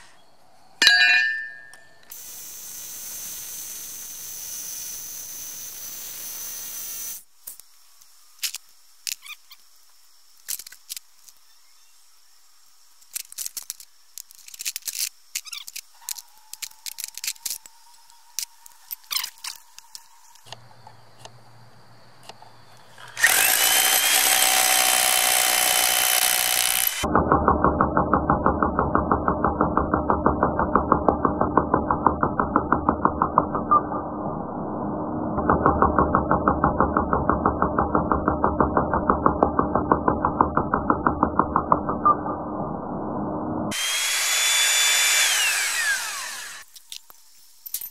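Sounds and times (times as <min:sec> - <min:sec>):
hammer drill motor hum: 0:22.8 - 0:27.1, 0:43.7 - 0:46.7.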